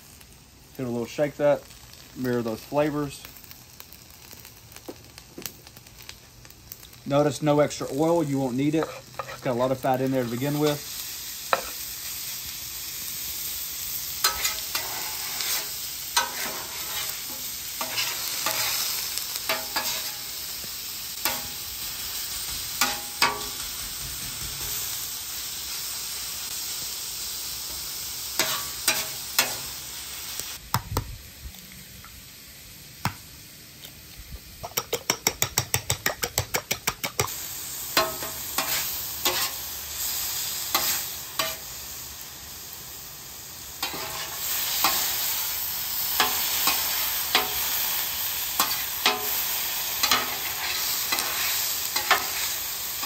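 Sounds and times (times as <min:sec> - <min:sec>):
meat sizzling on a griddle: 0:00.0 - 0:53.0
metal spatula scraping and tapping: 0:08.7 - 0:09.5, 0:11.5 - 0:11.8, 0:14.2 - 0:18.8, 0:19.5 - 0:20.2, 0:22.8 - 0:23.6, 0:28.4 - 0:29.6, 0:34.6 - 0:37.3, 0:38.0 - 0:39.6, 0:40.7 - 0:41.6, 0:43.8 - 0:45.0, 0:46.2 - 0:47.6, 0:48.6 - 0:49.4, 0:50.0 - 0:52.5.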